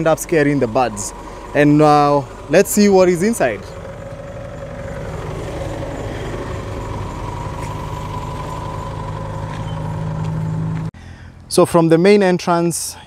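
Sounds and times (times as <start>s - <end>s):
engine running with whine: 0.0s - 11.5s.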